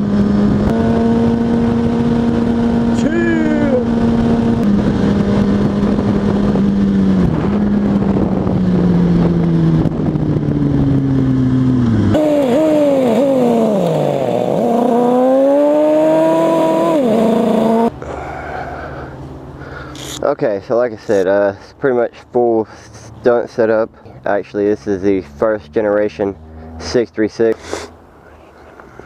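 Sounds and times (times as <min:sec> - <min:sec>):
wind rushing on microphone: 0:00.0 - 0:12.3
motorcycle engine running: 0:00.0 - 0:18.0.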